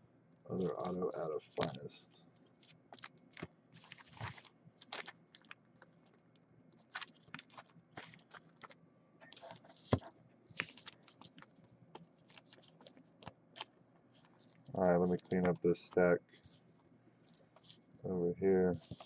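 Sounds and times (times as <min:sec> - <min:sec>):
plastic card sleeves clicking and crinkling: 0:02.6 - 0:05.9, 0:06.8 - 0:15.6, 0:18.8 - 0:19.0.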